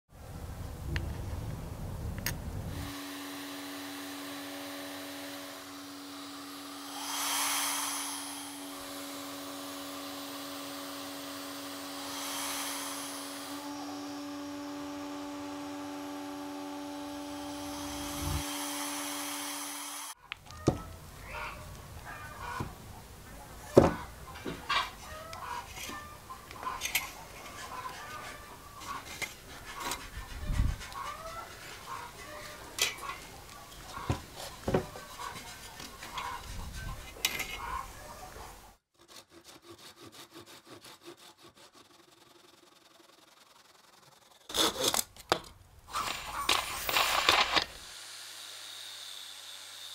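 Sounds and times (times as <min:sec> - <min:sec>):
vacuum cleaner whining: 0:02.7 - 0:20.2, 0:45.9 - 0:49.9
rush of hissing air: 0:06.8 - 0:08.9, 0:12.0 - 0:13.6
chickens clucking: 0:20.3 - 0:38.8, 0:46.0 - 0:46.5.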